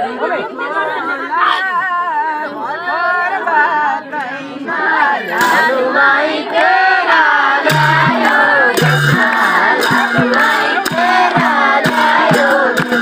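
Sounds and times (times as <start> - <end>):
group singing folk song: 2.5 - 13.0
hand claps: 6.5 - 13.0.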